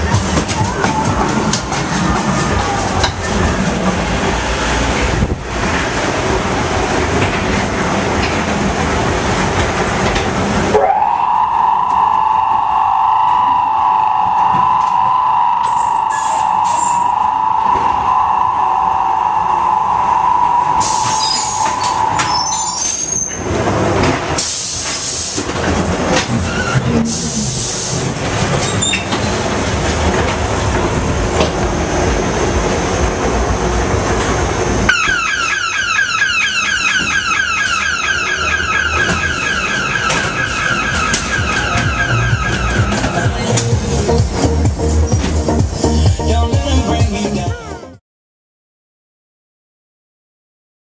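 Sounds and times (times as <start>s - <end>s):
ride car rumbling on track: 0.0s - 48.0s
steady high tone: 10.7s - 23.1s, 34.8s - 45.1s.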